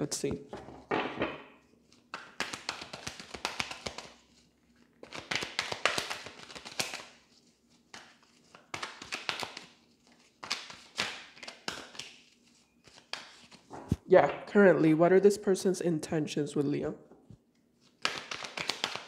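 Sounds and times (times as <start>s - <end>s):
cards being shuffled: 1.8s - 14.0s, 17.8s - 19.0s.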